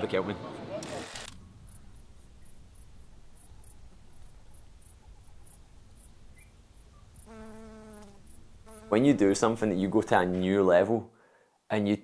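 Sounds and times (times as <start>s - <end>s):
high-pitched insect chirps: 1.6s - 8.9s.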